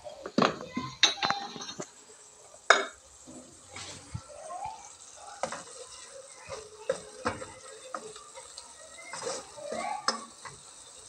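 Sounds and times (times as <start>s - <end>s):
wooden spoon knocking on saucepan: 6.5s - 8.2s.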